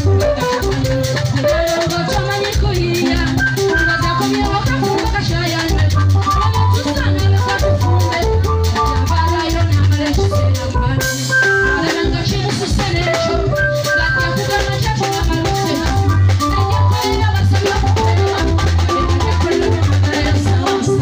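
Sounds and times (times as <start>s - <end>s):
upbeat band music over speakers: 0.0s - 21.0s.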